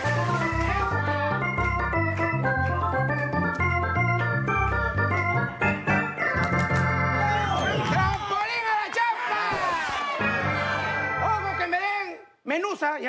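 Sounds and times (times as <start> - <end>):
upbeat electronic dance music: 0.0 - 7.8.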